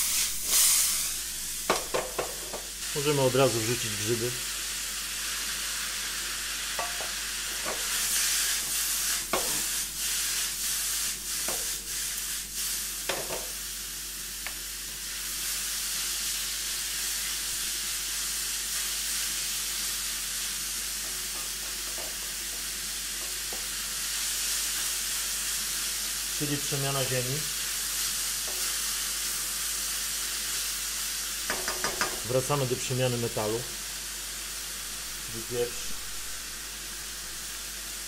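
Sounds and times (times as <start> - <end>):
vegetables sizzling in a wok: 0.0 - 38.0
wooden spoon knocking against wok: 1.7 - 2.7, 6.8 - 7.1, 21.3 - 22.2, 31.5 - 32.2.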